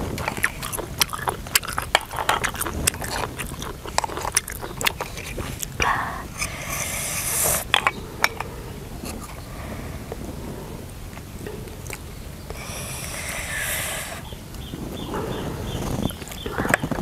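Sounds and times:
hissing noise: 5.4s - 8.3s, 12.5s - 16.2s.

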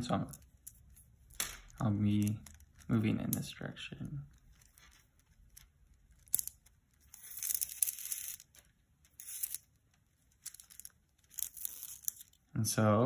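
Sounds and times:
string rasping through beads: 0.0s - 12.6s
plastic beads clicking: 4.3s - 12.5s.

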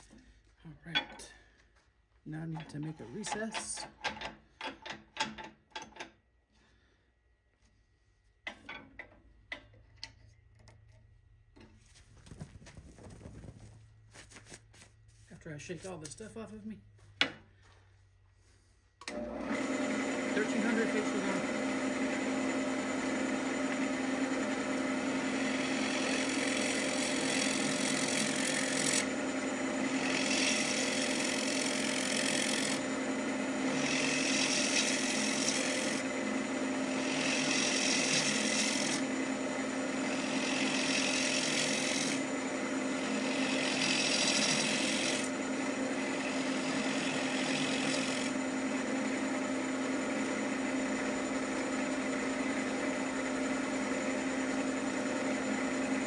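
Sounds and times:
lathe motor hum: 19.0s - 56.0s
turning tool scraping wood: 19.6s - 56.0s.

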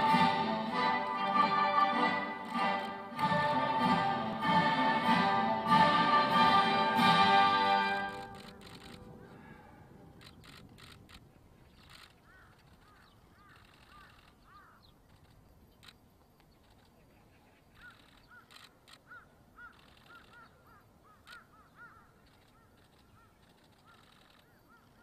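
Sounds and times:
sharp clicks: 8.1s - 9.2s, 10.1s - 17.0s, 17.8s - 20.5s, 21.2s - 21.5s
faint birds calling: 8.2s - 25.0s.

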